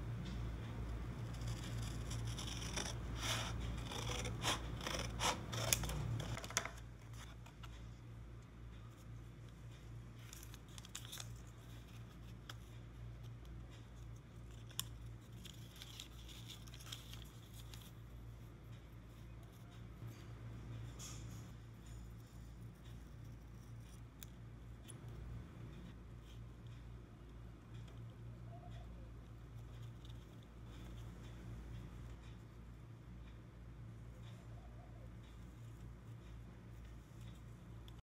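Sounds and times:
steady low hum: 0.0 - 38.0
scissors snipping paper: 1.3 - 7.7, 10.2 - 18.0
paper handling: 2.2 - 8.0, 10.1 - 13.3.

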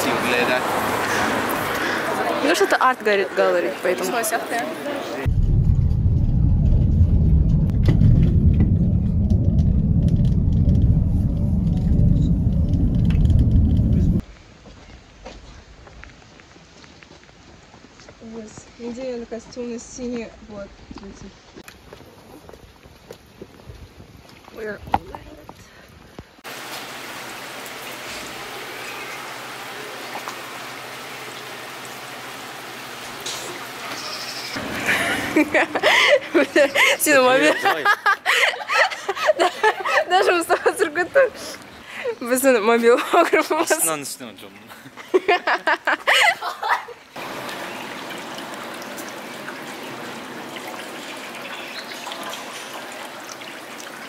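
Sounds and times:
steady rain falling: 0.0 - 24.8, 26.1 - 42.2, 42.9 - 54.0
water trickling on stone steps: 26.5 - 42.1, 47.1 - 54.0.

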